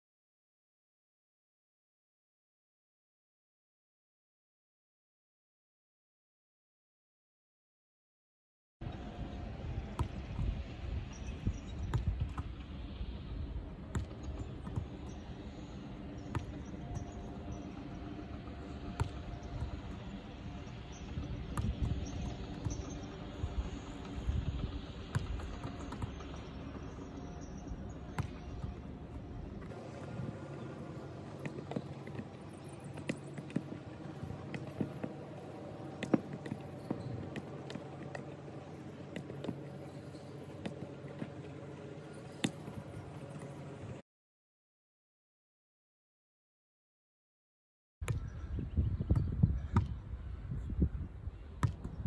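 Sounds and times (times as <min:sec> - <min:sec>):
ball thumping on turf: 0:13.9 - 0:15.0, 0:21.5 - 0:22.9, 0:36.0 - 0:38.2, 0:51.6 - 0:52.0.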